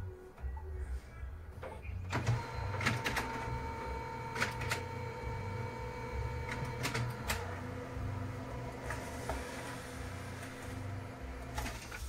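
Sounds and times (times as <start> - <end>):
printer motors whining: 2.1 - 12.0
printer mechanism clicks: 4.2 - 5.0, 6.4 - 7.6.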